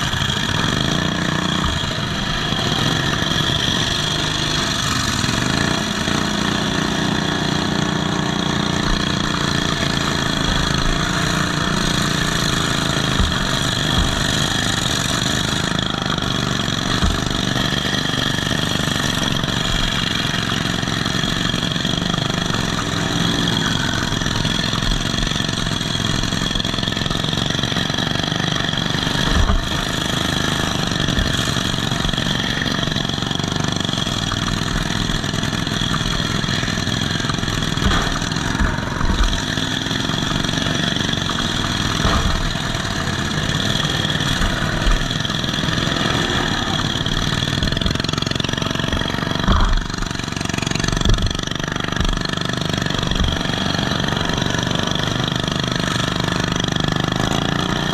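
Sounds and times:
mowers bumping thuds: 0.0s - 57.9s
riding lawn mower engine: 0.0s - 57.9s.

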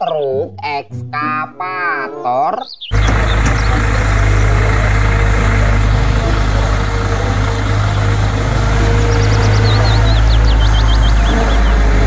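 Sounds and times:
excavator diesel engine humming: 2.9s - 12.0s.

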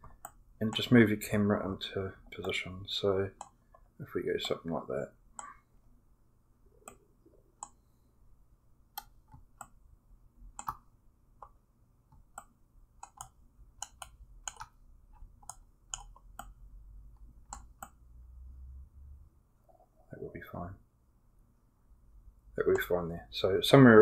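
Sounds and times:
computer mouse clicking: 0.0s - 0.9s, 2.3s - 2.6s, 3.3s - 4.8s, 6.8s - 7.0s, 7.6s - 7.8s, 8.9s - 9.8s, 10.5s - 18.0s
faint low hum: 0.0s - 24.0s.

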